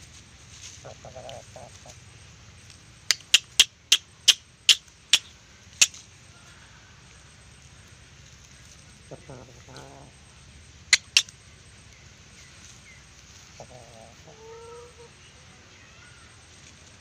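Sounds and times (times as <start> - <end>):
chicken clucking: 0.7 - 2.1, 3.1 - 6.0, 8.6 - 10.2, 10.9 - 11.3, 13.3 - 15.4
sharp loud clicks: 3.0 - 6.0, 10.9 - 11.4.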